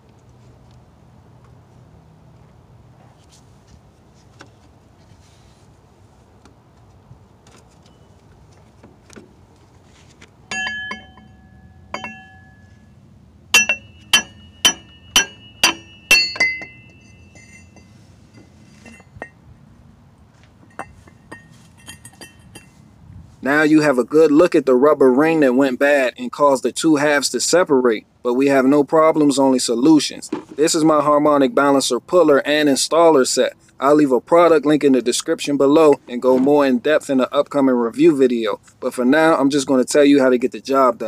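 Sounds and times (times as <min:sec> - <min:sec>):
hammer striking metal ringing: 0:10.5 - 0:12.9, 0:13.5 - 0:18.0.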